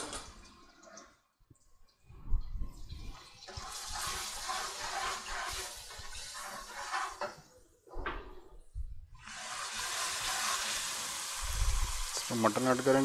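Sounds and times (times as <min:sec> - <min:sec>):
paste sizzling in hot oil: 0:03.4 - 0:07.4, 0:09.2 - 0:13.0.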